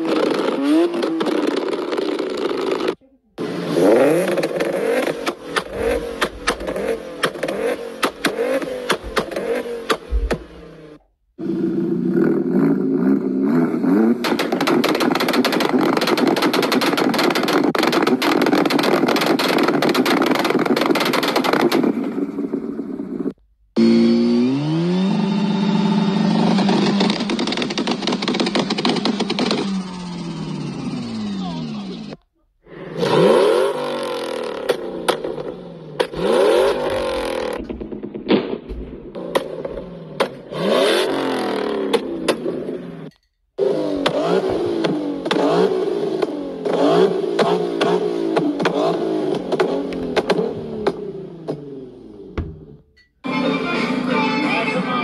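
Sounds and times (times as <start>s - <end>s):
car engine revving: 0.0s - 52.9s
car exhaust crackling and popping: 4.0s - 11.1s, 14.1s - 23.5s, 26.6s - 30.7s, 34.0s - 53.0s.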